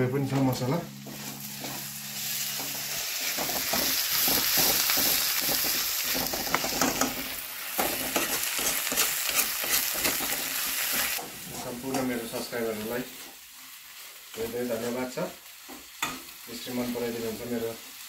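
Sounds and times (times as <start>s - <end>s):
onions and tomatoes sizzling: 0.0s - 18.0s
steel ladle scraping pan: 1.0s - 11.7s.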